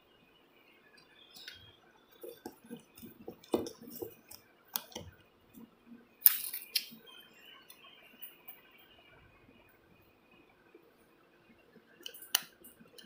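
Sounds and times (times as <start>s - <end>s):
small plastic clicks and knocks: 2.2s - 5.2s.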